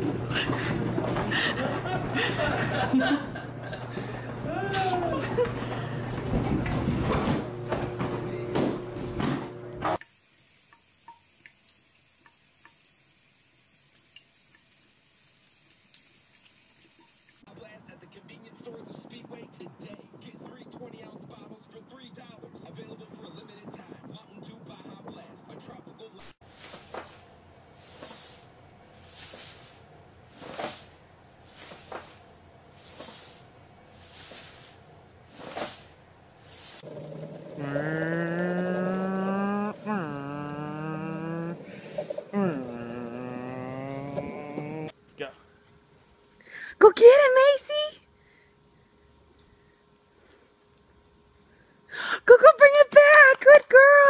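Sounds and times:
short hissing puffs: 26.4 - 36.9
long low animal call: 36.8 - 44.9.

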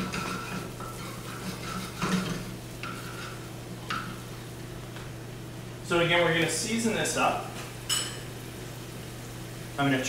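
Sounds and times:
metal spoon scraping a pan: 0.0 - 4.0.

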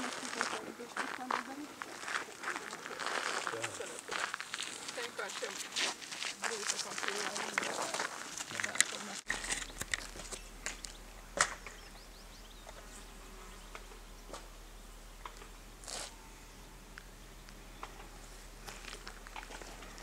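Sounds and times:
soft rustle: 0.0 - 11.0
low steady hum: 9.2 - 20.0.

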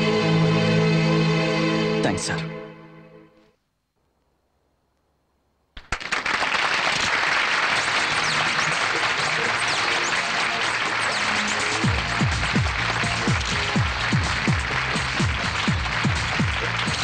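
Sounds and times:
audience applause: 5.8 - 17.0.

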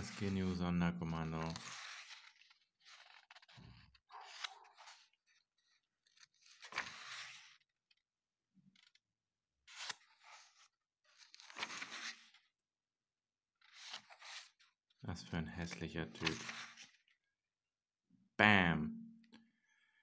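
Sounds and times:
paper pages rustling: 0.0 - 8.0, 8.7 - 9.0, 9.6 - 12.6, 13.6 - 14.7, 15.6 - 17.2.

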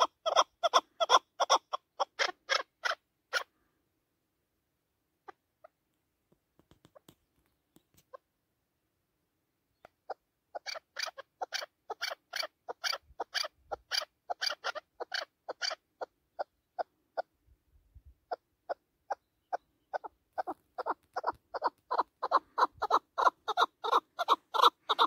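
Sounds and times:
partridge clucking call: 0.0 - 3.5, 9.8 - 17.3, 18.3 - 25.0.

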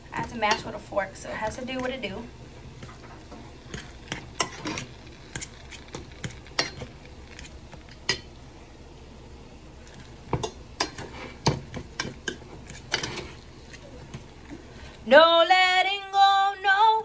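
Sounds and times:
fork mashing potatoes in saucepan: 0.1 - 8.4, 9.8 - 14.6.

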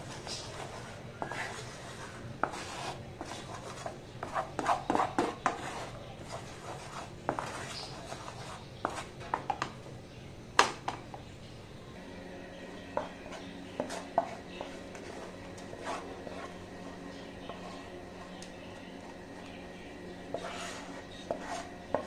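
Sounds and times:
spatula scraping frying pan: 0.0 - 9.6, 12.9 - 18.4, 20.2 - 22.0.

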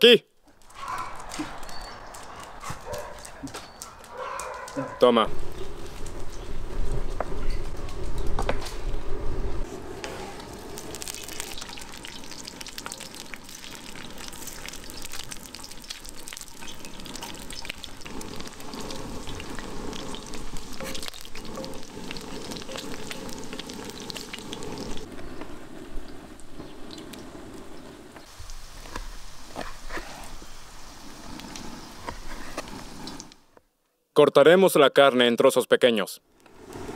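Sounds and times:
fat sizzling and crackling in a pan: 9.6 - 33.6.

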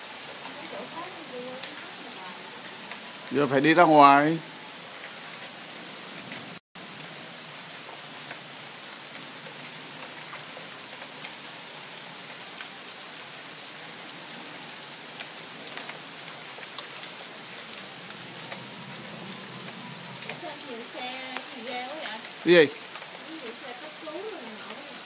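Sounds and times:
rain hissing: 0.0 - 25.0
hail pellets ticking: 19.3 - 25.0.

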